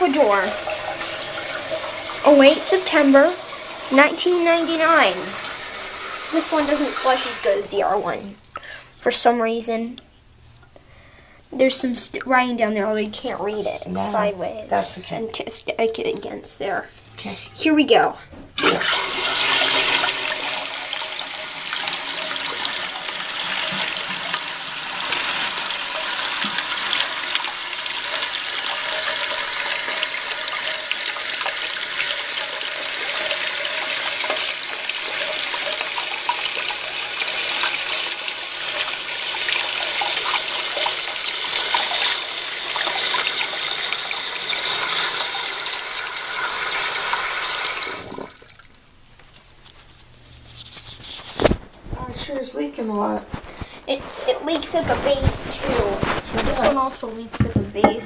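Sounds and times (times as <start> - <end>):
toilet flushing and tank refilling: 0.0 - 8.3, 18.5 - 48.8.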